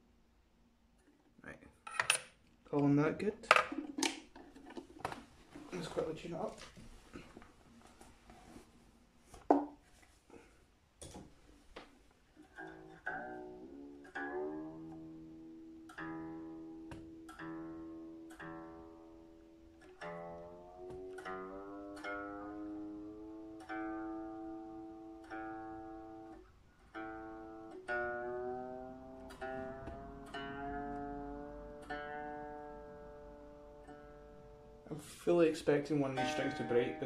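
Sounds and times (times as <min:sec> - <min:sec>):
electric guitar strings plucked: 0:12.4 - 0:34.9, 0:35.7 - 0:37.0.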